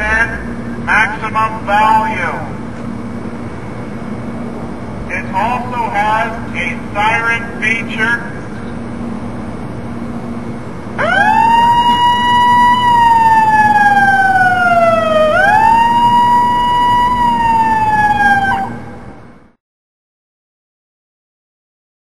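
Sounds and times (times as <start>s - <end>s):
distant wailing siren: 8.4s - 19.6s.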